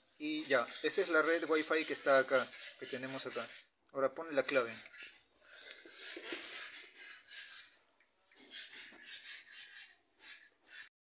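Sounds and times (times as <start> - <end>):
scratchy handling of phone: 4.4 - 10.9.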